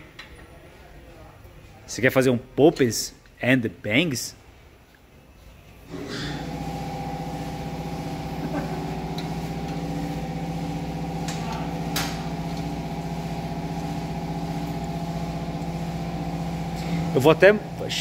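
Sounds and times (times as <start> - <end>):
machine droning steadily: 5.9 - 18.0.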